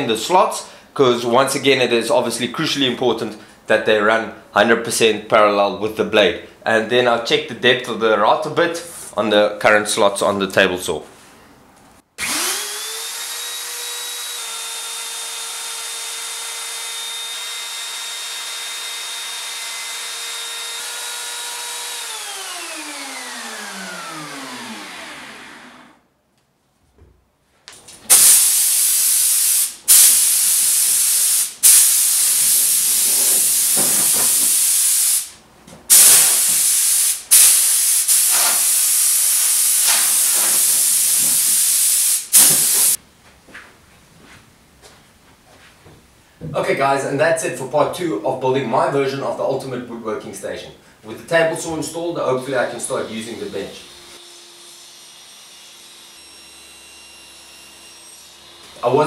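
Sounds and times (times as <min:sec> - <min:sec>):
electric router running: 0:12.2 - 0:26.0, 0:52.9 - 0:58.8
loud hissing bursts: 0:28.1 - 0:43.0.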